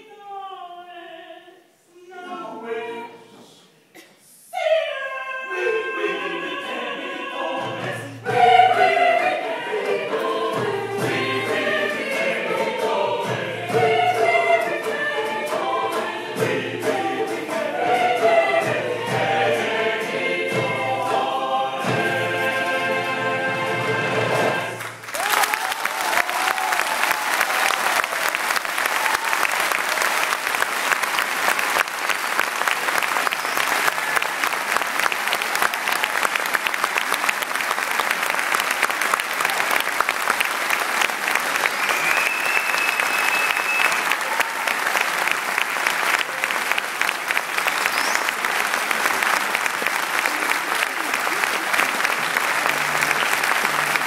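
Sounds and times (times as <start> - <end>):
choir singing held chord: 2.1 - 3.5, 4.8 - 24.8
audience applause: 24.6 - 54.0.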